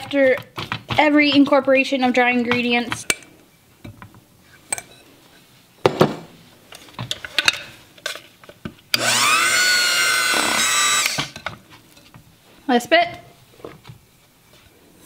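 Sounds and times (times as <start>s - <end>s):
electric hand mixer running: 9.0s - 11.4s.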